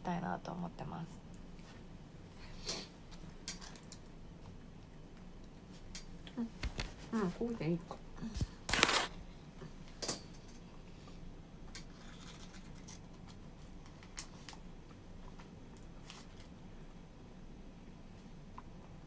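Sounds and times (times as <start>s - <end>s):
plastic wrapper crinkling: 8.7s - 9.1s
quiet chewing: 11.8s - 17.0s.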